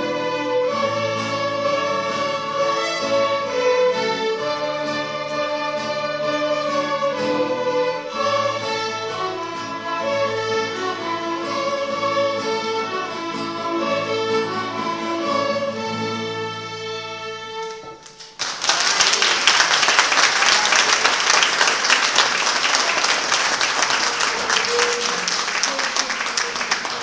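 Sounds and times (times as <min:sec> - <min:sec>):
string orchestra playing: 0:00.0 - 0:18.1, 0:19.4 - 0:27.0
audience applause: 0:18.0 - 0:27.0.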